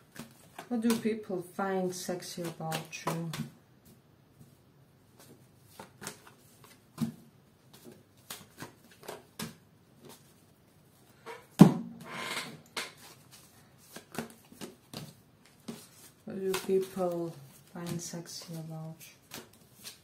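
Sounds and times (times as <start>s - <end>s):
cards rustling: 5.2s - 10.4s, 12.9s - 20.0s.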